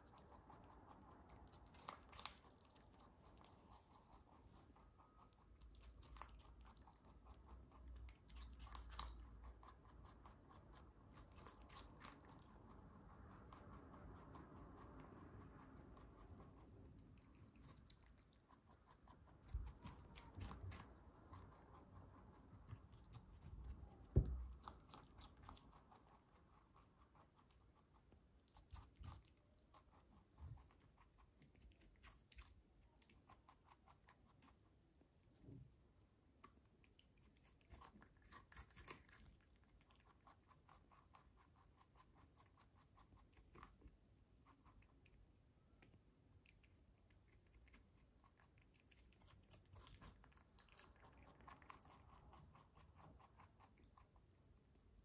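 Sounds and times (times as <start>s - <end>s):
rabbit nibbling crunchily: 0.0s - 55.0s.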